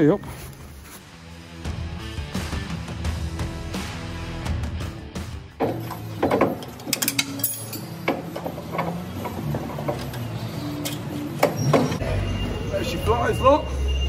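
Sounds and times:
metal clicks and knocks: 0:05.6 - 0:10.2.

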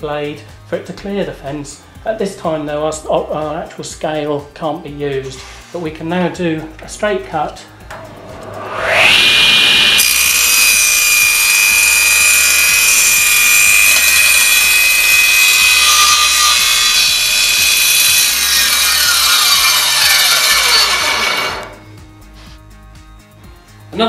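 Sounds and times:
table saw cutting board: 0:08.0 - 0:22.6.

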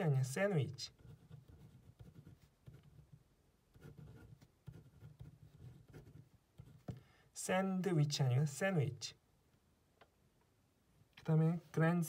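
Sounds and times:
pen writing on paper: 0:00.9 - 0:03.2, 0:03.8 - 0:07.0.

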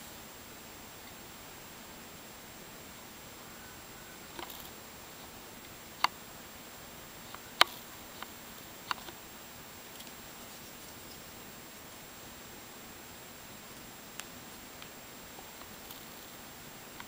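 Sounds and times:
steady hiss: 0:00.0 - 0:17.0.

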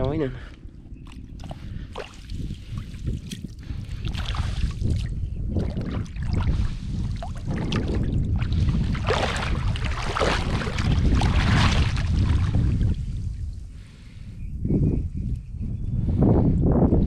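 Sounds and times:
wind rumble on microphone: 0:00.0 - 0:17.0
water splashing and sloshing: 0:00.5 - 0:13.4.

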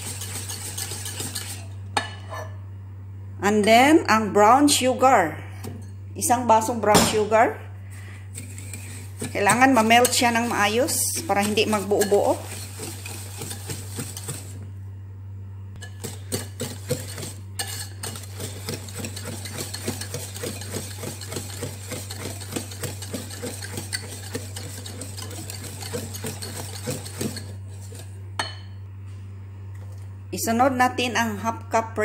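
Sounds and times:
whisk beating batter in bowl: 0:00.0 - 0:01.8, 0:08.2 - 0:14.7, 0:15.8 - 0:28.2.

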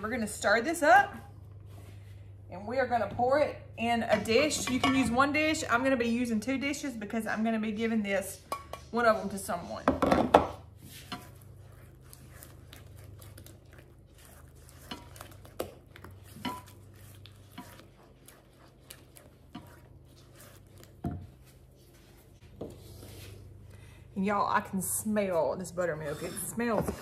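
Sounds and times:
spatula stirring thick batter: 0:10.6 - 0:24.4
spatula tapping bowl: 0:14.8 - 0:18.1.

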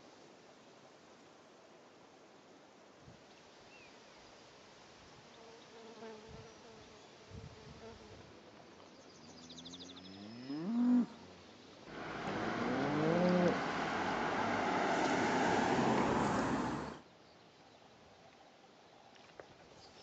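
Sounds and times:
cow mooing: 0:11.9 - 0:14.2.

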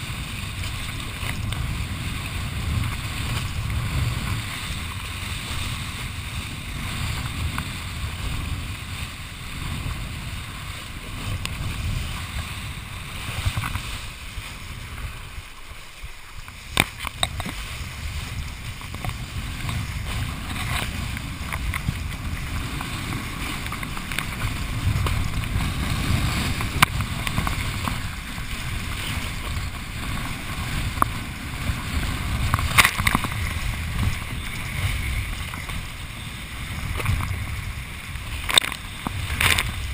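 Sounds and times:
board slapping water: 0:00.0 - 0:39.9
wind rumbling on microphone: 0:00.0 - 0:39.9.

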